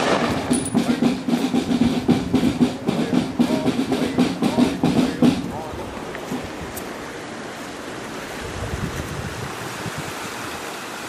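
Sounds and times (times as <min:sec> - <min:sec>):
snare drum rolls: 0:00.0 - 0:06.4
marching drums playing: 0:00.0 - 0:06.7.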